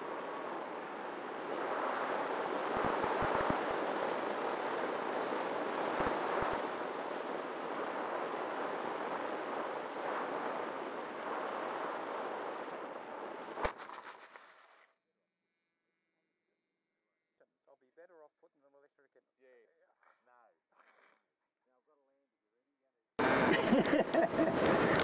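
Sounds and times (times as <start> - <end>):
wind rushing over microphone: 0.0 - 13.6, 23.2 - 25.0.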